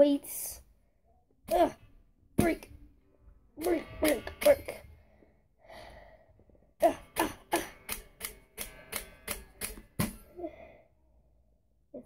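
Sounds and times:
dumbbell banging: 0:06.8 - 0:10.4.

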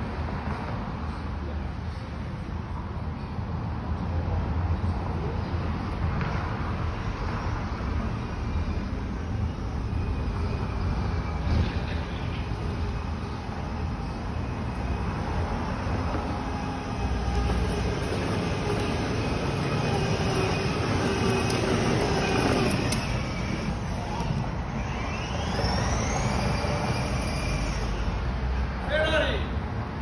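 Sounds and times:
toy car electric motors whining: 0:15.9 - 0:28.7
plastic wheels rolling on hard floor: 0:17.3 - 0:23.6.

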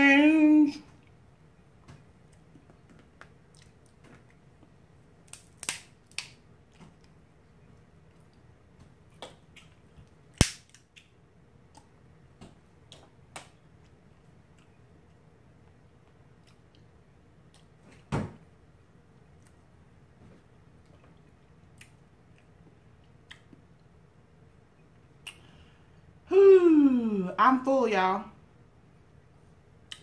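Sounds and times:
shells cracking: 0:10.4 - 0:10.9.

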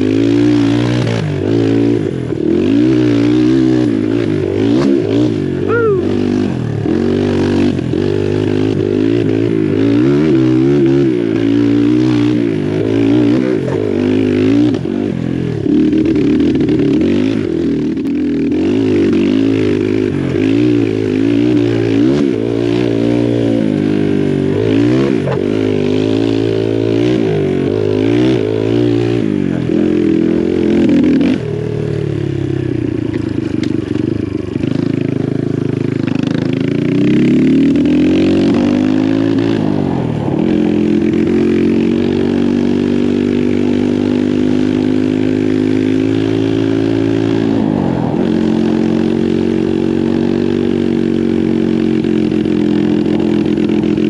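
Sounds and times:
dirt bike engine revving: 0:00.0 - 0:54.0
rider talking: 0:05.6 - 0:06.2.

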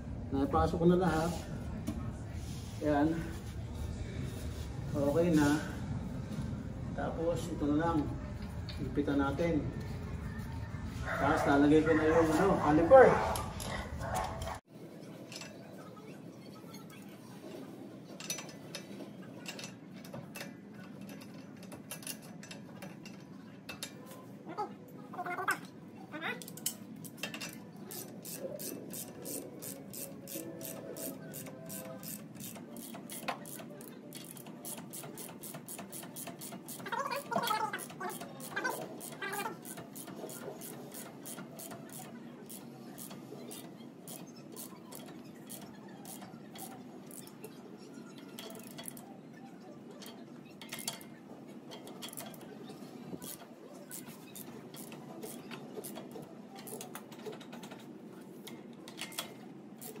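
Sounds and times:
ratchet wrench clicking: 0:26.4 - 0:49.0, 0:53.2 - 0:57.0, 0:59.0 - 1:00.0.

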